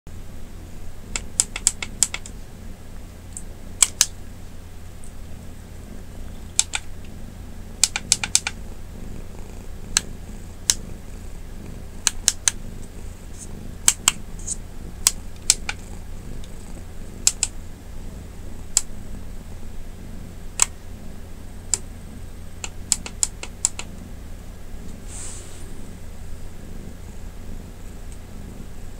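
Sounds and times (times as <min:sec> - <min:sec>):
cat purring: 0:00.1 - 0:28.9
sharp clicks: 0:01.1 - 0:02.4, 0:03.3 - 0:04.2, 0:06.5 - 0:07.1, 0:07.8 - 0:08.7, 0:09.4 - 0:11.0, 0:12.0 - 0:17.6, 0:18.7 - 0:18.9, 0:20.5 - 0:20.8, 0:21.7 - 0:21.9, 0:22.6 - 0:24.0.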